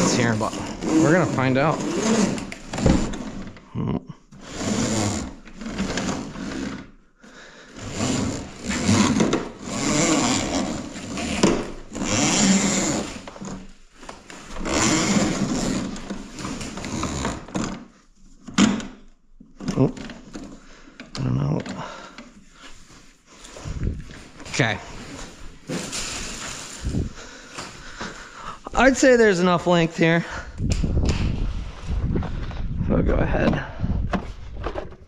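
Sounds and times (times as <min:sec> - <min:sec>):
hose rubbing through guide: 0:00.0 - 0:03.1, 0:07.8 - 0:13.6, 0:14.4 - 0:17.5, 0:22.4 - 0:27.2.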